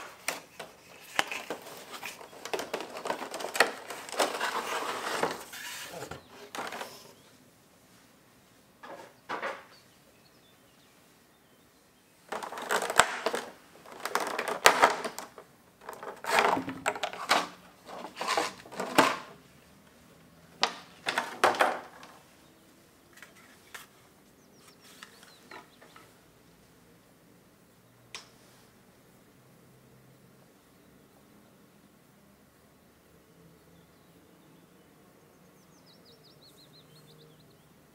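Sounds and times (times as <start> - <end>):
plastic packaging crackling: 0.0 - 7.1, 12.2 - 19.4.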